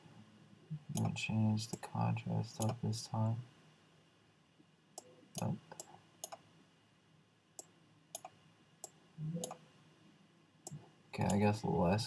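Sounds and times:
computer mouse clicks: 0:00.9 - 0:01.8, 0:02.6 - 0:02.8, 0:05.0 - 0:06.4, 0:07.6 - 0:09.6.

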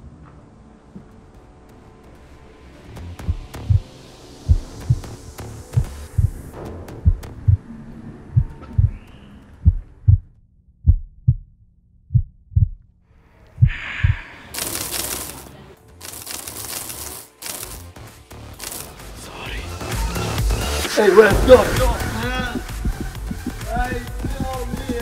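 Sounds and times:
heartbeat thumps: 0:03.2 - 0:07.7, 0:08.3 - 0:12.9, 0:13.6 - 0:14.2, 0:21.3 - 0:25.0.

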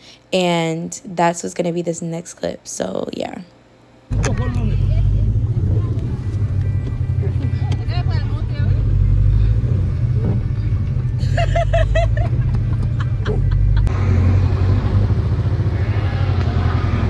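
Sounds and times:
loud steady low rumble: 0:04.1 - 0:17.0.

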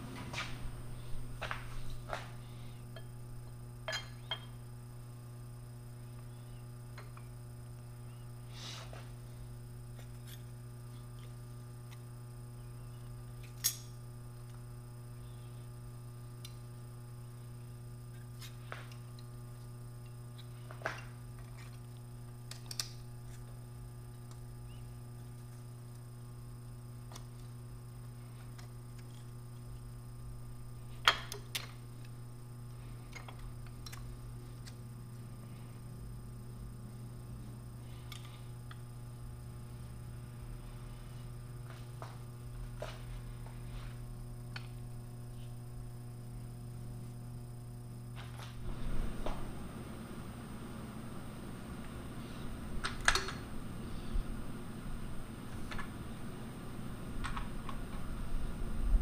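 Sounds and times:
low electrical hum: 0:00.0 - 0:59.0.

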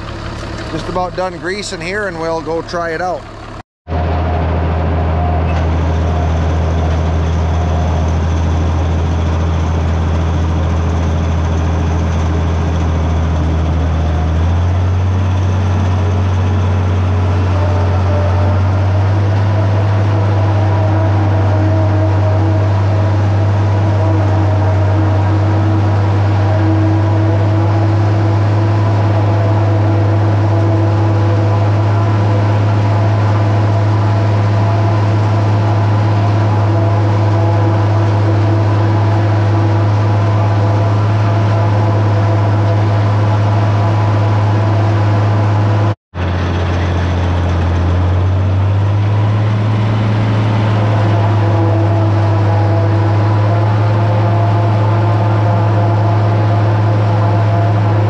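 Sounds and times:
forage harvester chopping corn: 0:00.0 - 0:03.2, 0:05.6 - 0:58.0
tractor diesel engine under load: 0:00.0 - 0:58.0.

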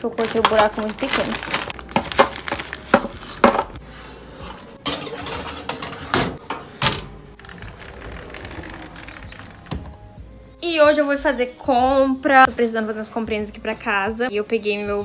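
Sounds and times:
metal baking tray clattering: 0:04.8 - 0:07.1
oven door opening and shutting: 0:05.1 - 0:10.2.

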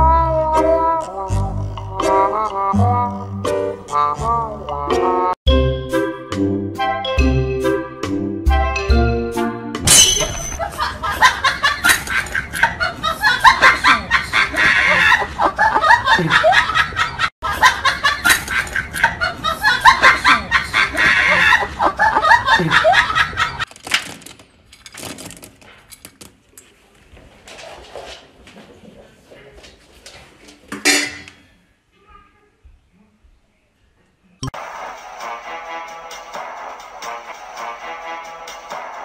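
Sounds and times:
people laughing heartily: 0:10.6 - 0:23.7.

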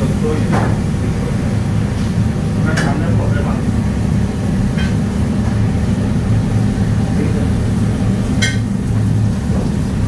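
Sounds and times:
low machine hum: 0:00.0 - 0:10.0.

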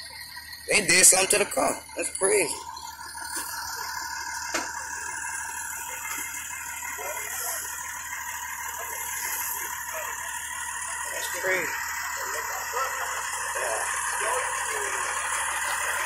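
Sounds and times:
fire engine running: 0:00.0 - 0:16.0
faint voices: 0:04.6 - 0:16.0.

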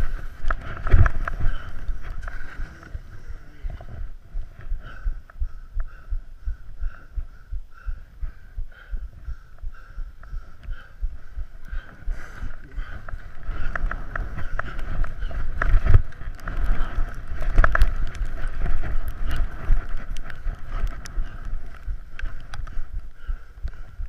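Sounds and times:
wind buffeting microphone: 0:00.0 - 0:24.0
sharp clicks and scrapes: 0:11.7 - 0:22.9
skis running over snow: 0:12.1 - 0:22.8.

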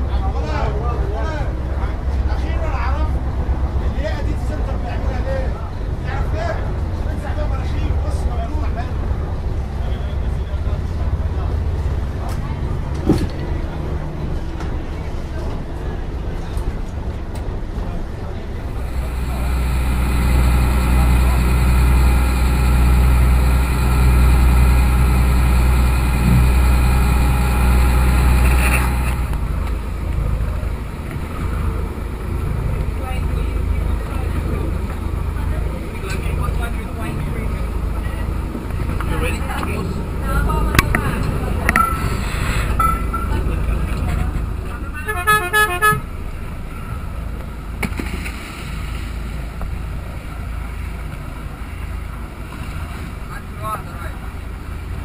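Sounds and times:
boat engine droning: 0:00.0 - 0:55.0
water noise: 0:18.5 - 0:55.0.

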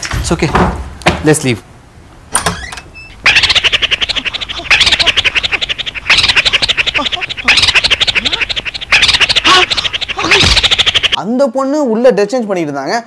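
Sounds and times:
rapid scratchy rattle: 0:03.2 - 0:11.2.

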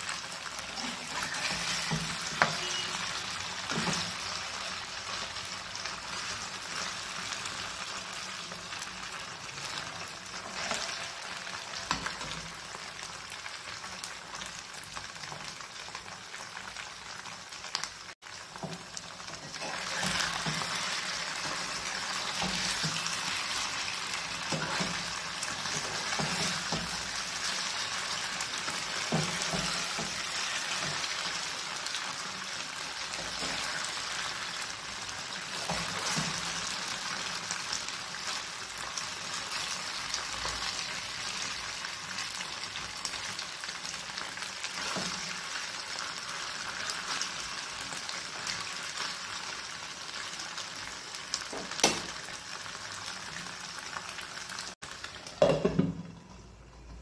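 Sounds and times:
food sizzling in oil: 0:00.0 - 0:57.0
metal spatula scraping pan: 0:01.0 - 0:04.3, 0:10.4 - 0:12.4, 0:19.4 - 0:27.7.

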